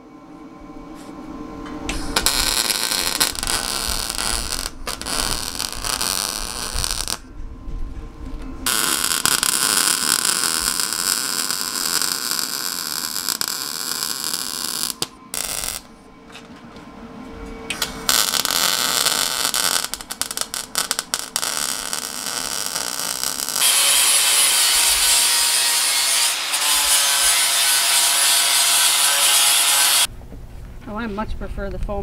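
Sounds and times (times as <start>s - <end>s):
welding arc crackling hiss: 1.9s - 7.2s, 8.7s - 15.9s, 17.7s - 30.1s.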